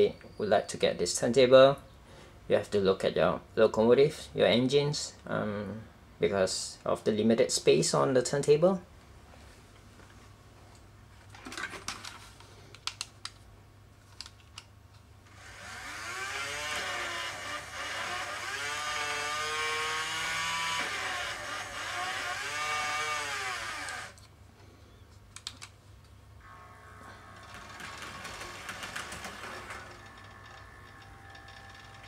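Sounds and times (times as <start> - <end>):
motor and gearing whining: 15.3 - 24.2, 26.4 - 32.0.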